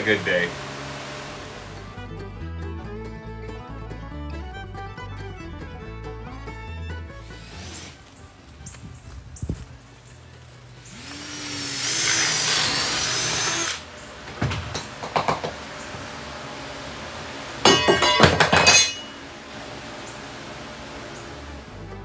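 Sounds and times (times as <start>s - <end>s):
power tool whining on wood: 0.0s - 2.0s, 7.1s - 8.2s, 10.8s - 17.7s, 18.8s - 21.8s
knocks: 14.3s - 15.6s.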